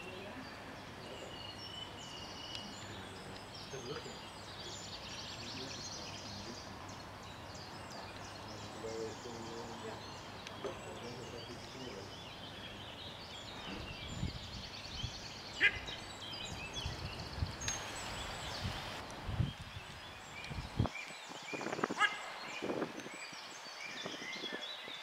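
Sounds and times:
songbirds singing and trilling: 0.0s - 25.0s
steady outdoor hiss: 0.0s - 25.0s.

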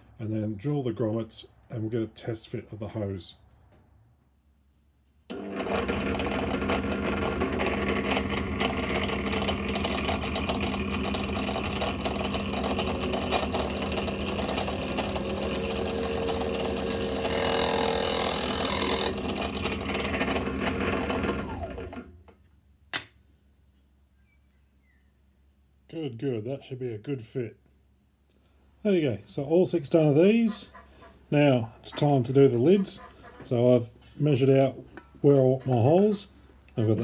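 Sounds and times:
drill bit boring rubber: 5.3s - 22.1s
motor winding down: 5.3s - 22.1s
drill press motor running: 5.3s - 22.2s.

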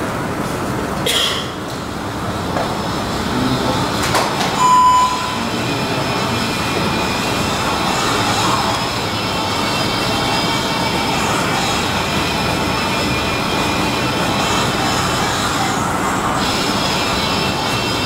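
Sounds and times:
steady rushing noise: 1.6s - 18.0s
short clear beep: 4.6s - 5.4s.

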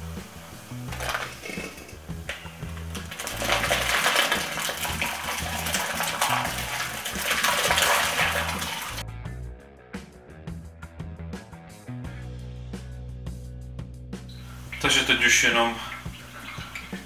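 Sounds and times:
thick liquid pouring through funnel: 0.9s - 1.8s, 2.4s - 9.0s, 14.4s - 17.0s.

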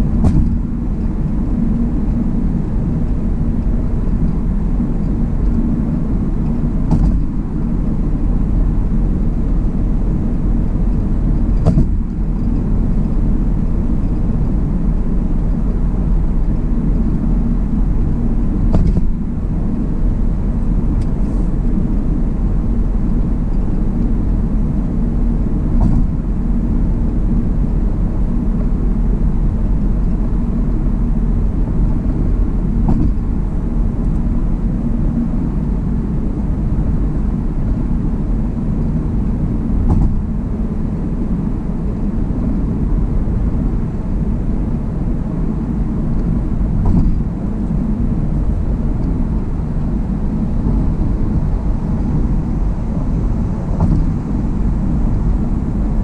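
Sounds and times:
car road and tyre noise: 0.0s - 56.0s
brief knocks: 6.9s - 7.3s, 53.8s - 54.2s.

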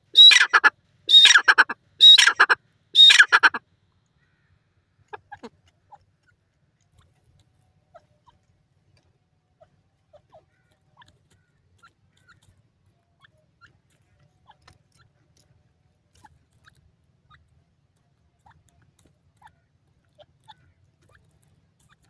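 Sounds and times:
pecking clicks in dry soil: 3.9s - 22.0s.

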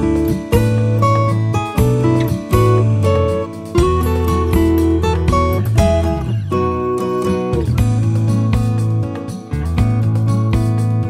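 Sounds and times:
repeating bass line: 0.0s - 6.7s
acoustic guitar music: 0.0s - 11.0s.

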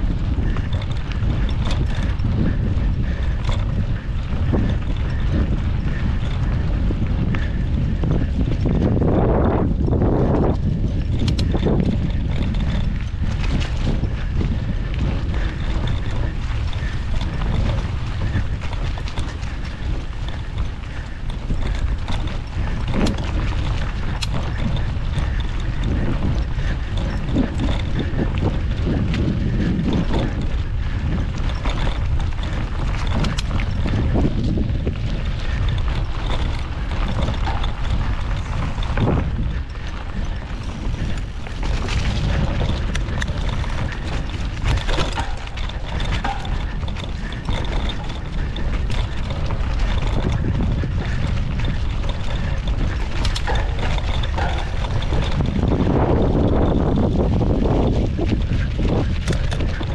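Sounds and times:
bike knocks and rattles: 0.0s - 59.9s
wind rumble on microphone: 0.0s - 59.9s.

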